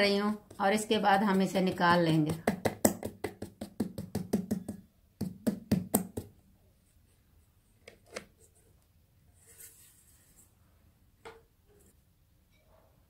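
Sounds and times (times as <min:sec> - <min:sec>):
hand knocking on metal cake tin: 0:00.3 - 0:06.3.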